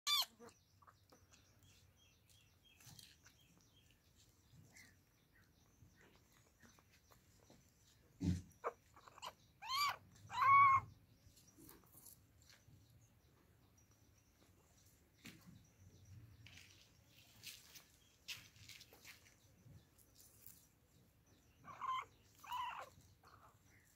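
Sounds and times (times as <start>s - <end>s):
kitten meowing: 9.2s - 10.9s.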